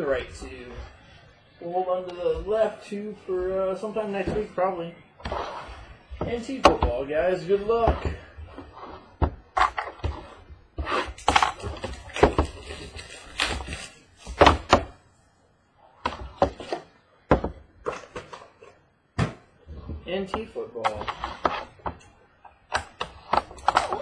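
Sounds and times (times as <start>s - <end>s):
crinkling wrap: 11.1s - 14.4s
box thunks on tabletop: 19.2s - 19.5s.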